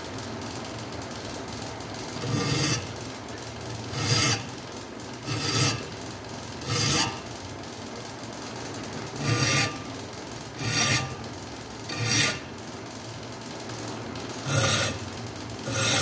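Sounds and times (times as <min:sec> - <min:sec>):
file rasping on steel blade: 0:02.2 - 0:03.0, 0:03.9 - 0:04.6, 0:05.2 - 0:05.9, 0:06.6 - 0:07.3, 0:09.1 - 0:10.0, 0:10.6 - 0:11.2, 0:11.9 - 0:12.5, 0:14.4 - 0:15.0, 0:15.6 - 0:16.0.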